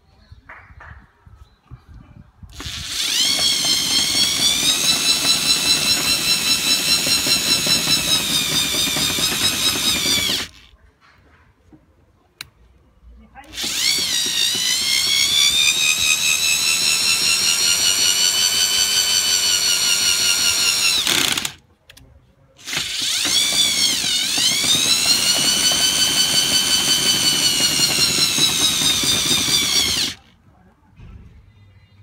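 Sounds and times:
electric drill motor whining: 2.5s - 10.7s, 13.5s - 21.6s, 22.6s - 30.3s.

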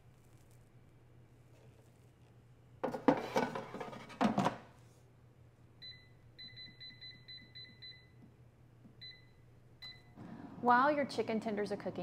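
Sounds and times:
fryer basket scraping and clunking: 2.9s - 4.5s.

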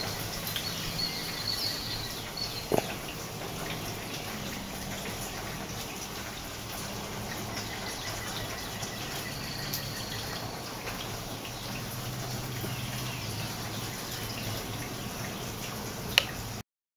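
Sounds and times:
faint drips: 0.0s - 16.6s
rain falling: 0.0s - 16.6s.

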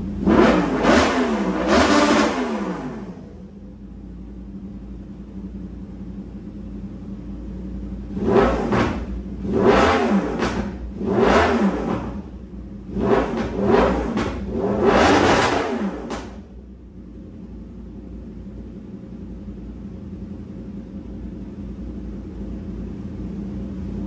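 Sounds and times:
motorcycle engine revving: 0.0s - 3.6s, 7.6s - 17.2s
motorcycle engine idling: 3.1s - 8.2s, 12.2s - 13.6s, 16.2s - 24.0s.

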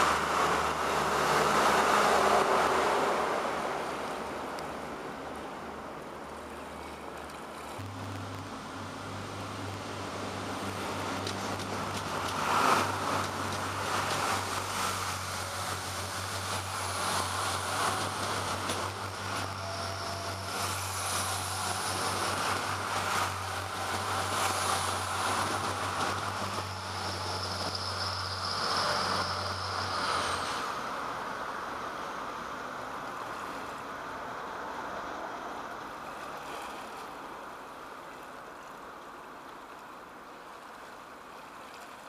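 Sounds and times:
diesel engine hum: 0.0s - 36.2s
high whine: 7.8s - 31.0s
wheels clattering on rail: 10.7s - 30.8s.

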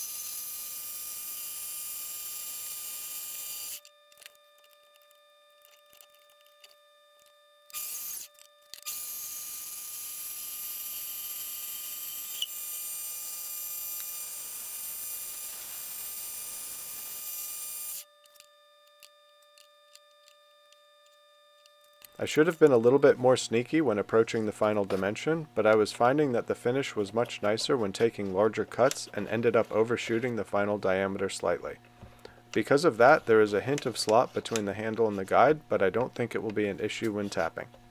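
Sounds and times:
lathe motor whine: 0.0s - 23.2s.

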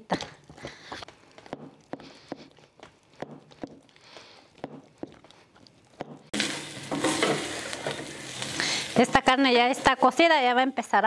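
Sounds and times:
meat sizzling in a pot: 6.3s - 11.0s.

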